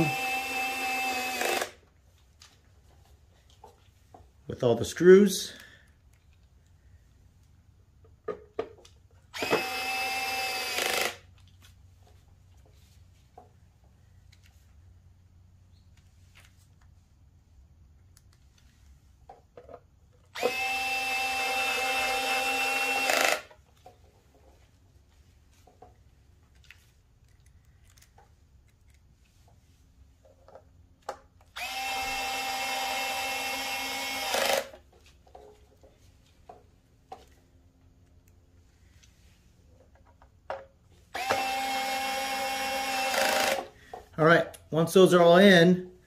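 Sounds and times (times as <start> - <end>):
electric screwdriver running: 0.0 - 1.8, 9.4 - 11.3, 20.3 - 23.5, 31.6 - 34.7, 41.2 - 43.7
clicks of handling screws: 25.5 - 31.5.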